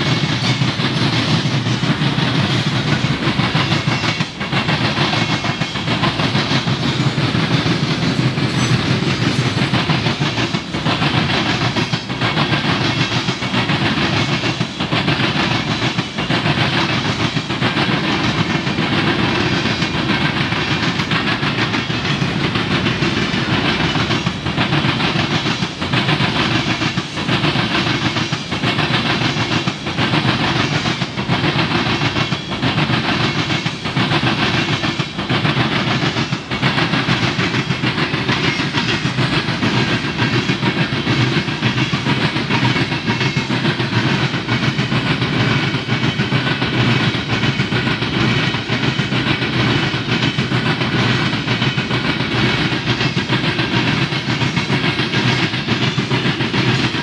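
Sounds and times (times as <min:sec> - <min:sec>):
freight train rolling past: 0:00.0 - 0:57.0
steel wheels clattering on rail: 0:00.0 - 0:57.0.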